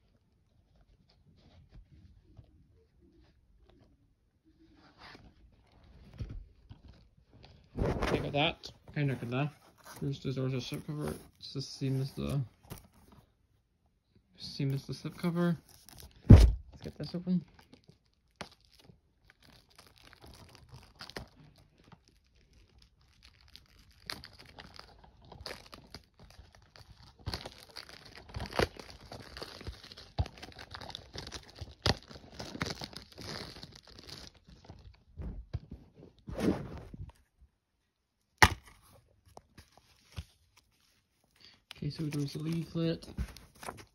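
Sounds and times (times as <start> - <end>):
plastic wrapping tearing and crinkling: 15.2 - 35.1, 39.7 - 43.9.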